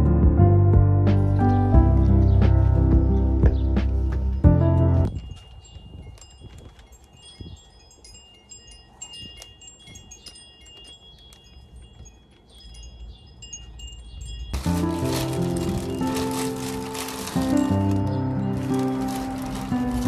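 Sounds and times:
background music: 0:00.0 - 0:05.1, 0:14.6 - 0:20.0
wind chimes ringing: 0:05.1 - 0:20.0.

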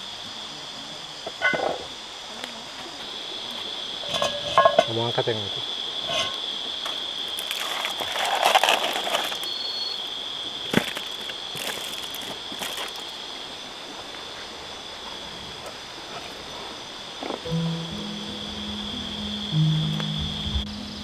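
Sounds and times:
insects droning: 0:00.0 - 0:21.0
noisy rustle: 0:06.0 - 0:09.9.

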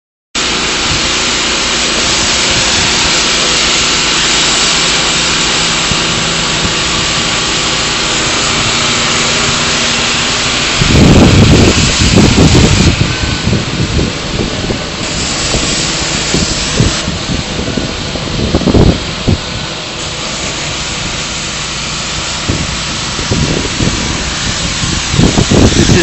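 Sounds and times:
spray rig engine hiss and hum: 0:00.4 - 0:26.0
wind buffeting microphone: 0:05.8 - 0:19.8, 0:22.3 - 0:26.0.

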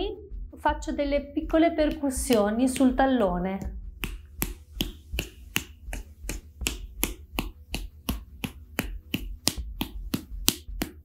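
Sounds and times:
hand slapping skin: 0:03.6 - 0:11.0.

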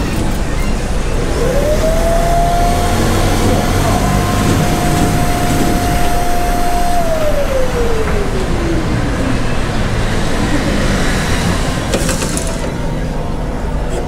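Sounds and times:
machine mechanical hum: 0:00.0 - 0:10.7
motor whine: 0:01.2 - 0:09.7.

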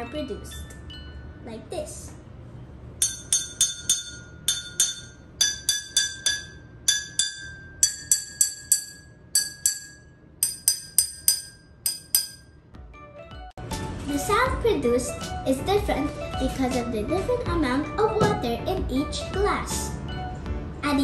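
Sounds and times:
spoon tapping ringing glasses: 0:03.0 - 0:12.6.

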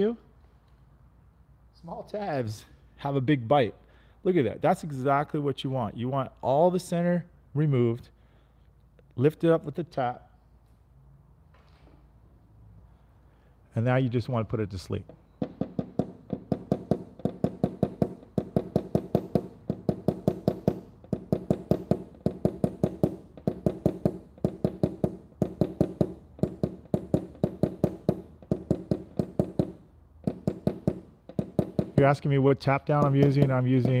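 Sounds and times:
tool tapping on car panel: 0:15.3 - 0:32.2, 0:32.8 - 0:34.0.

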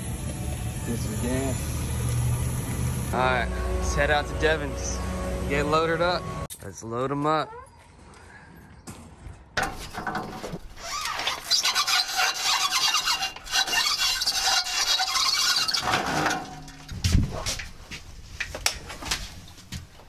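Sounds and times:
scraping on metal ramp: 0:09.6 - 0:17.8.

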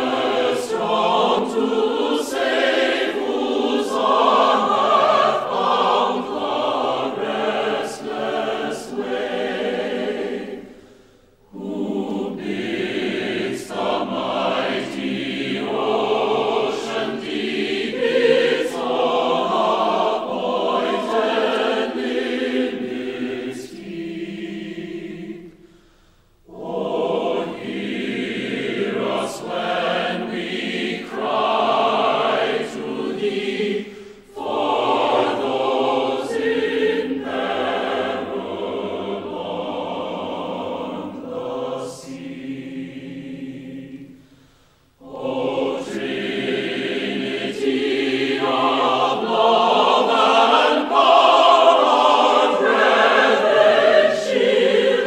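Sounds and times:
choir singing: 0:00.0 - 0:25.8, 0:26.4 - 0:55.0.

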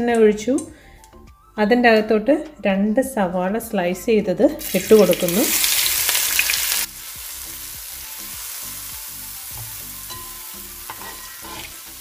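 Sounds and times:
onions sizzling in oil: 0:04.6 - 0:12.0
metal spatula stirring: 0:09.5 - 0:12.0.

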